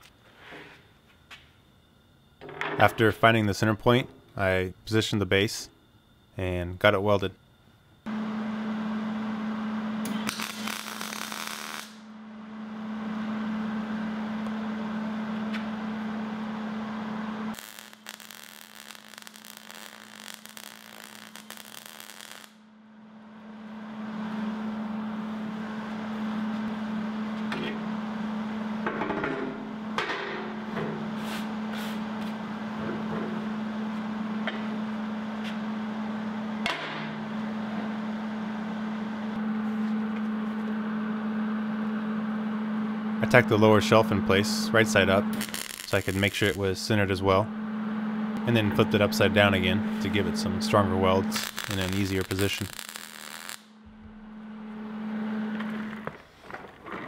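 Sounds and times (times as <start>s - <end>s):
steady low hum: 0.0s - 53.0s, 53.7s - 57.0s
arc welding crackling: 10.0s - 12.1s, 17.0s - 22.7s, 43.2s - 47.0s, 48.4s - 53.8s
metallic clanks and knocks: 28.8s - 31.0s.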